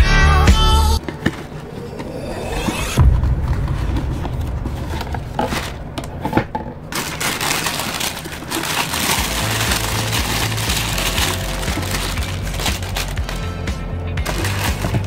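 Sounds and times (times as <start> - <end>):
tissue paper rustling: 6.9 - 15.0.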